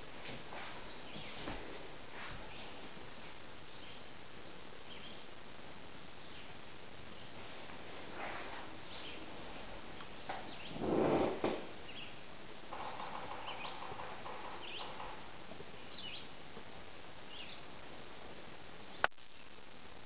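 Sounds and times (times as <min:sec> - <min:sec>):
steady background hiss: 0:00.0 - 0:20.0
birds chirping: 0:00.7 - 0:01.6, 0:03.6 - 0:05.4, 0:06.1 - 0:07.4, 0:08.6 - 0:17.8, 0:18.8 - 0:19.5.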